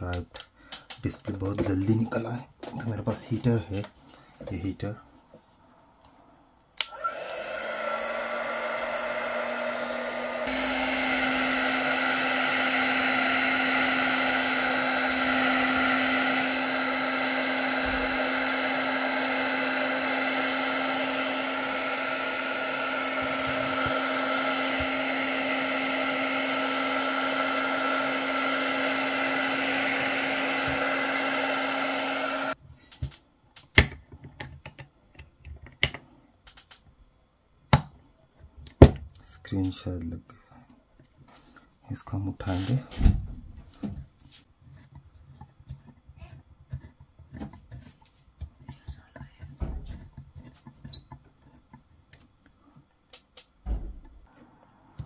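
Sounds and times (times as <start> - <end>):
heat gun blowing: 6.8 - 32.6.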